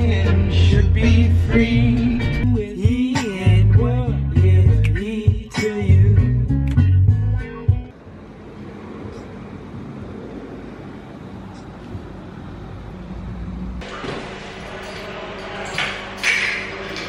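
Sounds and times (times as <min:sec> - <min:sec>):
music: 0:00.0 - 0:07.9.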